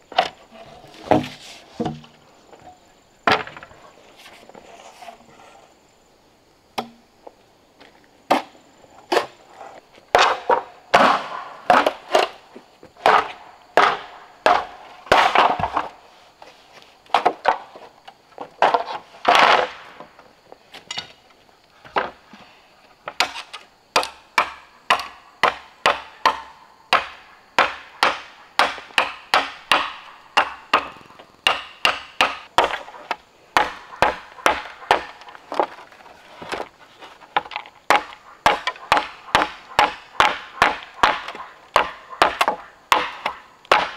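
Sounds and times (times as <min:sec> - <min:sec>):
axe chopping wood: 0:06.8 - 0:07.0, 0:10.1 - 0:12.4, 0:13.0 - 0:15.9, 0:23.1 - 0:35.7, 0:37.4 - 0:43.9.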